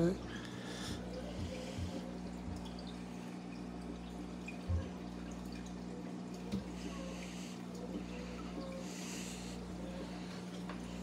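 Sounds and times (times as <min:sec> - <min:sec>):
water dripping and trickling: 0:00.0 - 0:11.0.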